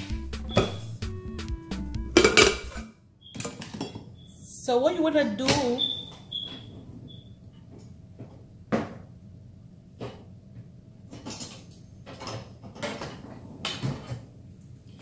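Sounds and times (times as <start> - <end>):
kitchen items knocking: 0.4 - 1.0, 2.0 - 2.8.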